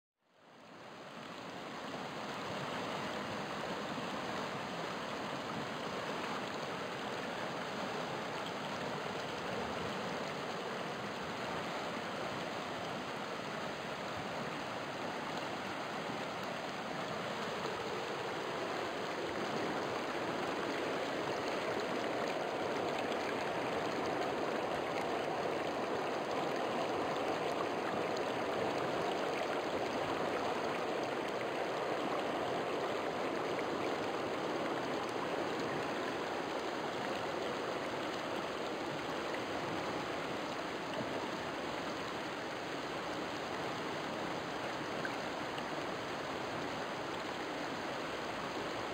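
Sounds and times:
river water rushing: 0.4 - 48.9.

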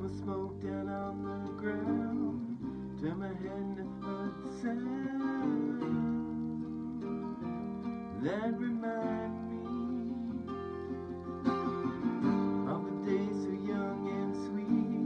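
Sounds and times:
acoustic guitars strummed: 0.0 - 15.0
man singing: 0.0 - 15.0.

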